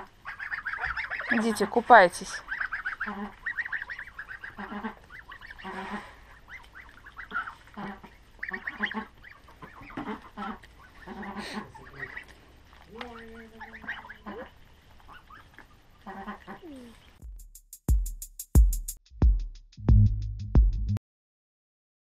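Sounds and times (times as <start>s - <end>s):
geese honking and gabbling: 0.0s - 17.2s.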